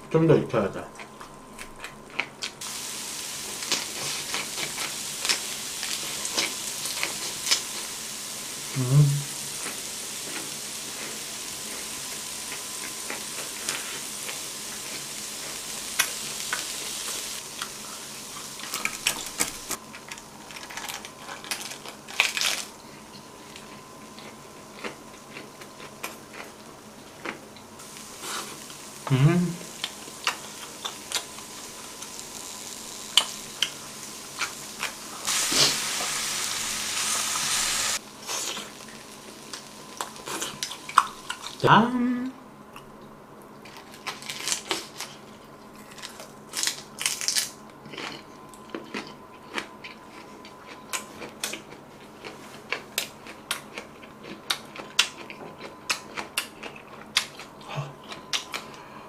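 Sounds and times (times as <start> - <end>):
meat sizzling on a griddle: 2.6 - 19.8, 27.8 - 41.6
person humming: 8.7 - 9.4, 29.0 - 29.8, 41.7 - 42.4, 57.6 - 58.0.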